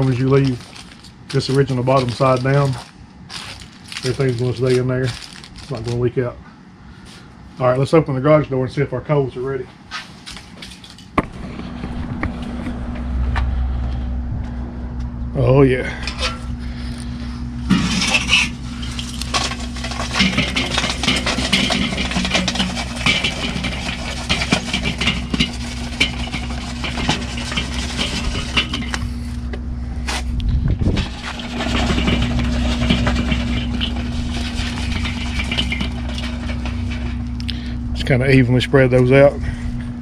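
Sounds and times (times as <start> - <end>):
charcoal scraping and clinking: 0.0 - 6.0, 15.9 - 29.5, 30.9 - 38.2.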